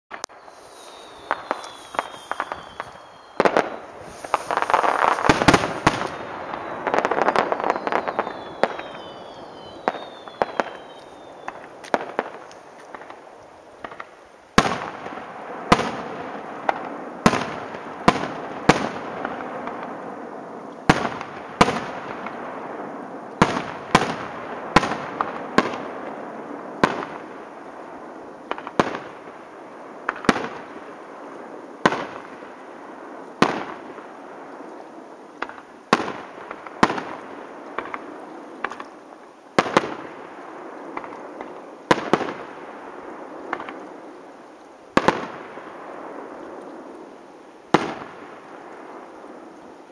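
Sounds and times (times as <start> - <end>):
fireworks shells bursting: 0.1 - 13.1
rushing crackling noise: 0.1 - 14.2.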